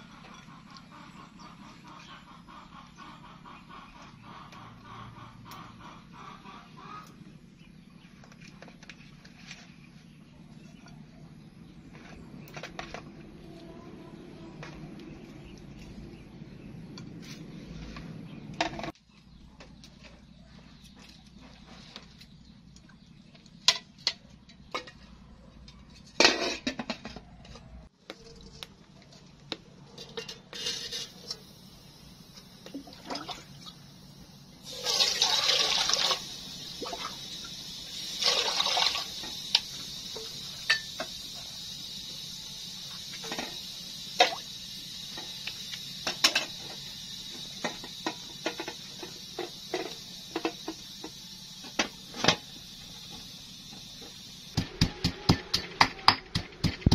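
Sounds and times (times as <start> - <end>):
water pouring into a metal pot: 34.6 - 40.9.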